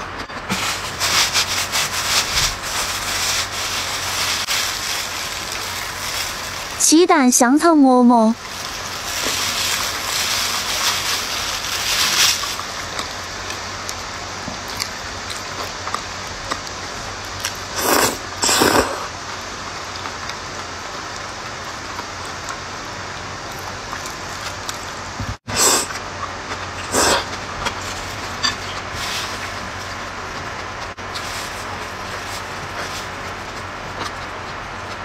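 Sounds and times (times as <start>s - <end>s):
chewing bread: 8.4s - 24.8s, 25.9s - 35.0s
slurping noodles: 17.7s - 19.1s, 25.5s - 26.0s, 26.8s - 28.0s.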